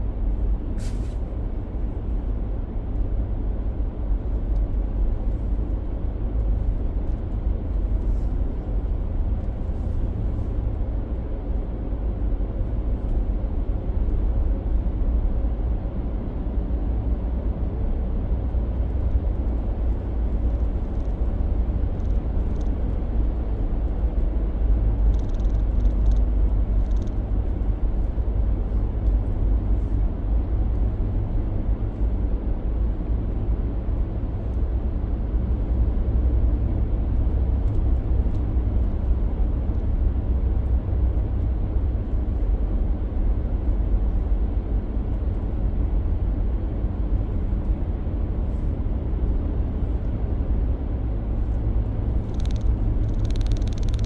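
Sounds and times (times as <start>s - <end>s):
road and engine rumble in car cab: 0.0s - 54.0s
faint ticks: 25.0s - 27.2s, 52.2s - 54.0s.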